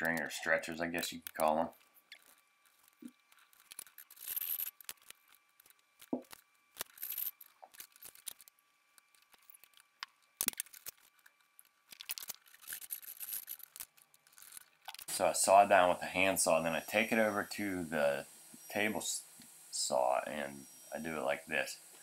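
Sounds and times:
tools and wood scraping: 0.0 - 15.1.

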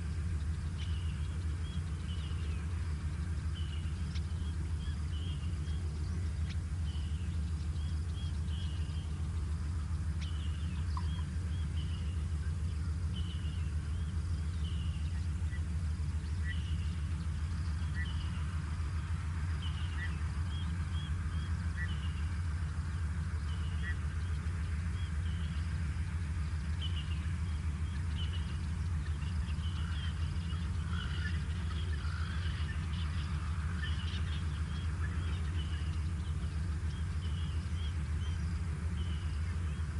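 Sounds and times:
small birds chirping: 0.0 - 39.9
steady low rumble: 0.0 - 39.9.

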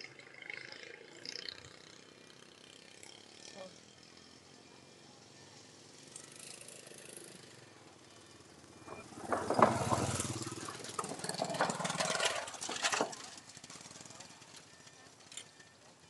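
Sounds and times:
small motorbike engine passing: 0.0 - 16.0
wooden boards knocking and rattling: 8.9 - 13.4.

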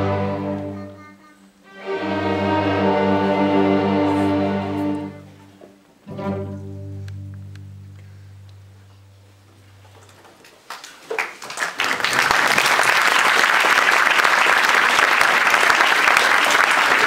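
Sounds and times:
string orchestra chord: 0.0 - 1.0, 1.6 - 9.7
audience applause: 10.6 - 17.0.

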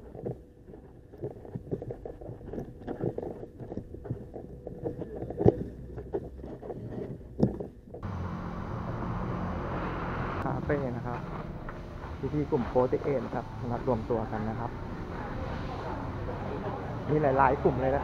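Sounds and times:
clothing rubbing on microphone: 0.0 - 8.0
footsteps on paved road: 0.0 - 18.0.

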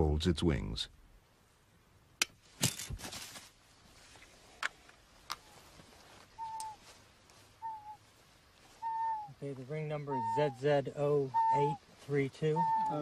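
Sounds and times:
bird whistled call: 6.4 - 6.8, 7.6 - 8.0, 8.8 - 9.4, 10.0 - 10.6, 11.3 - 11.8, 12.5 - 13.0.

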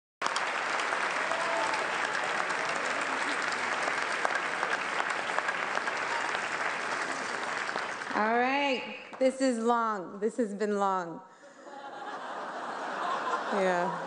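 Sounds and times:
audience applauding: 0.2 - 9.2.

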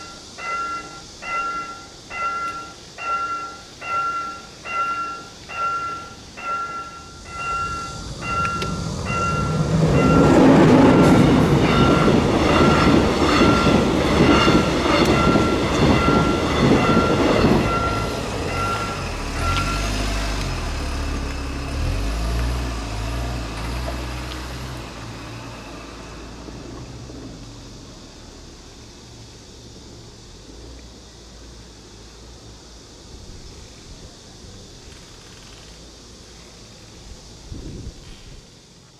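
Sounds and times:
level crossing warning bell: 0.0 - 20.2
train rumble and wheel clatter: 0.0 - 38.9.

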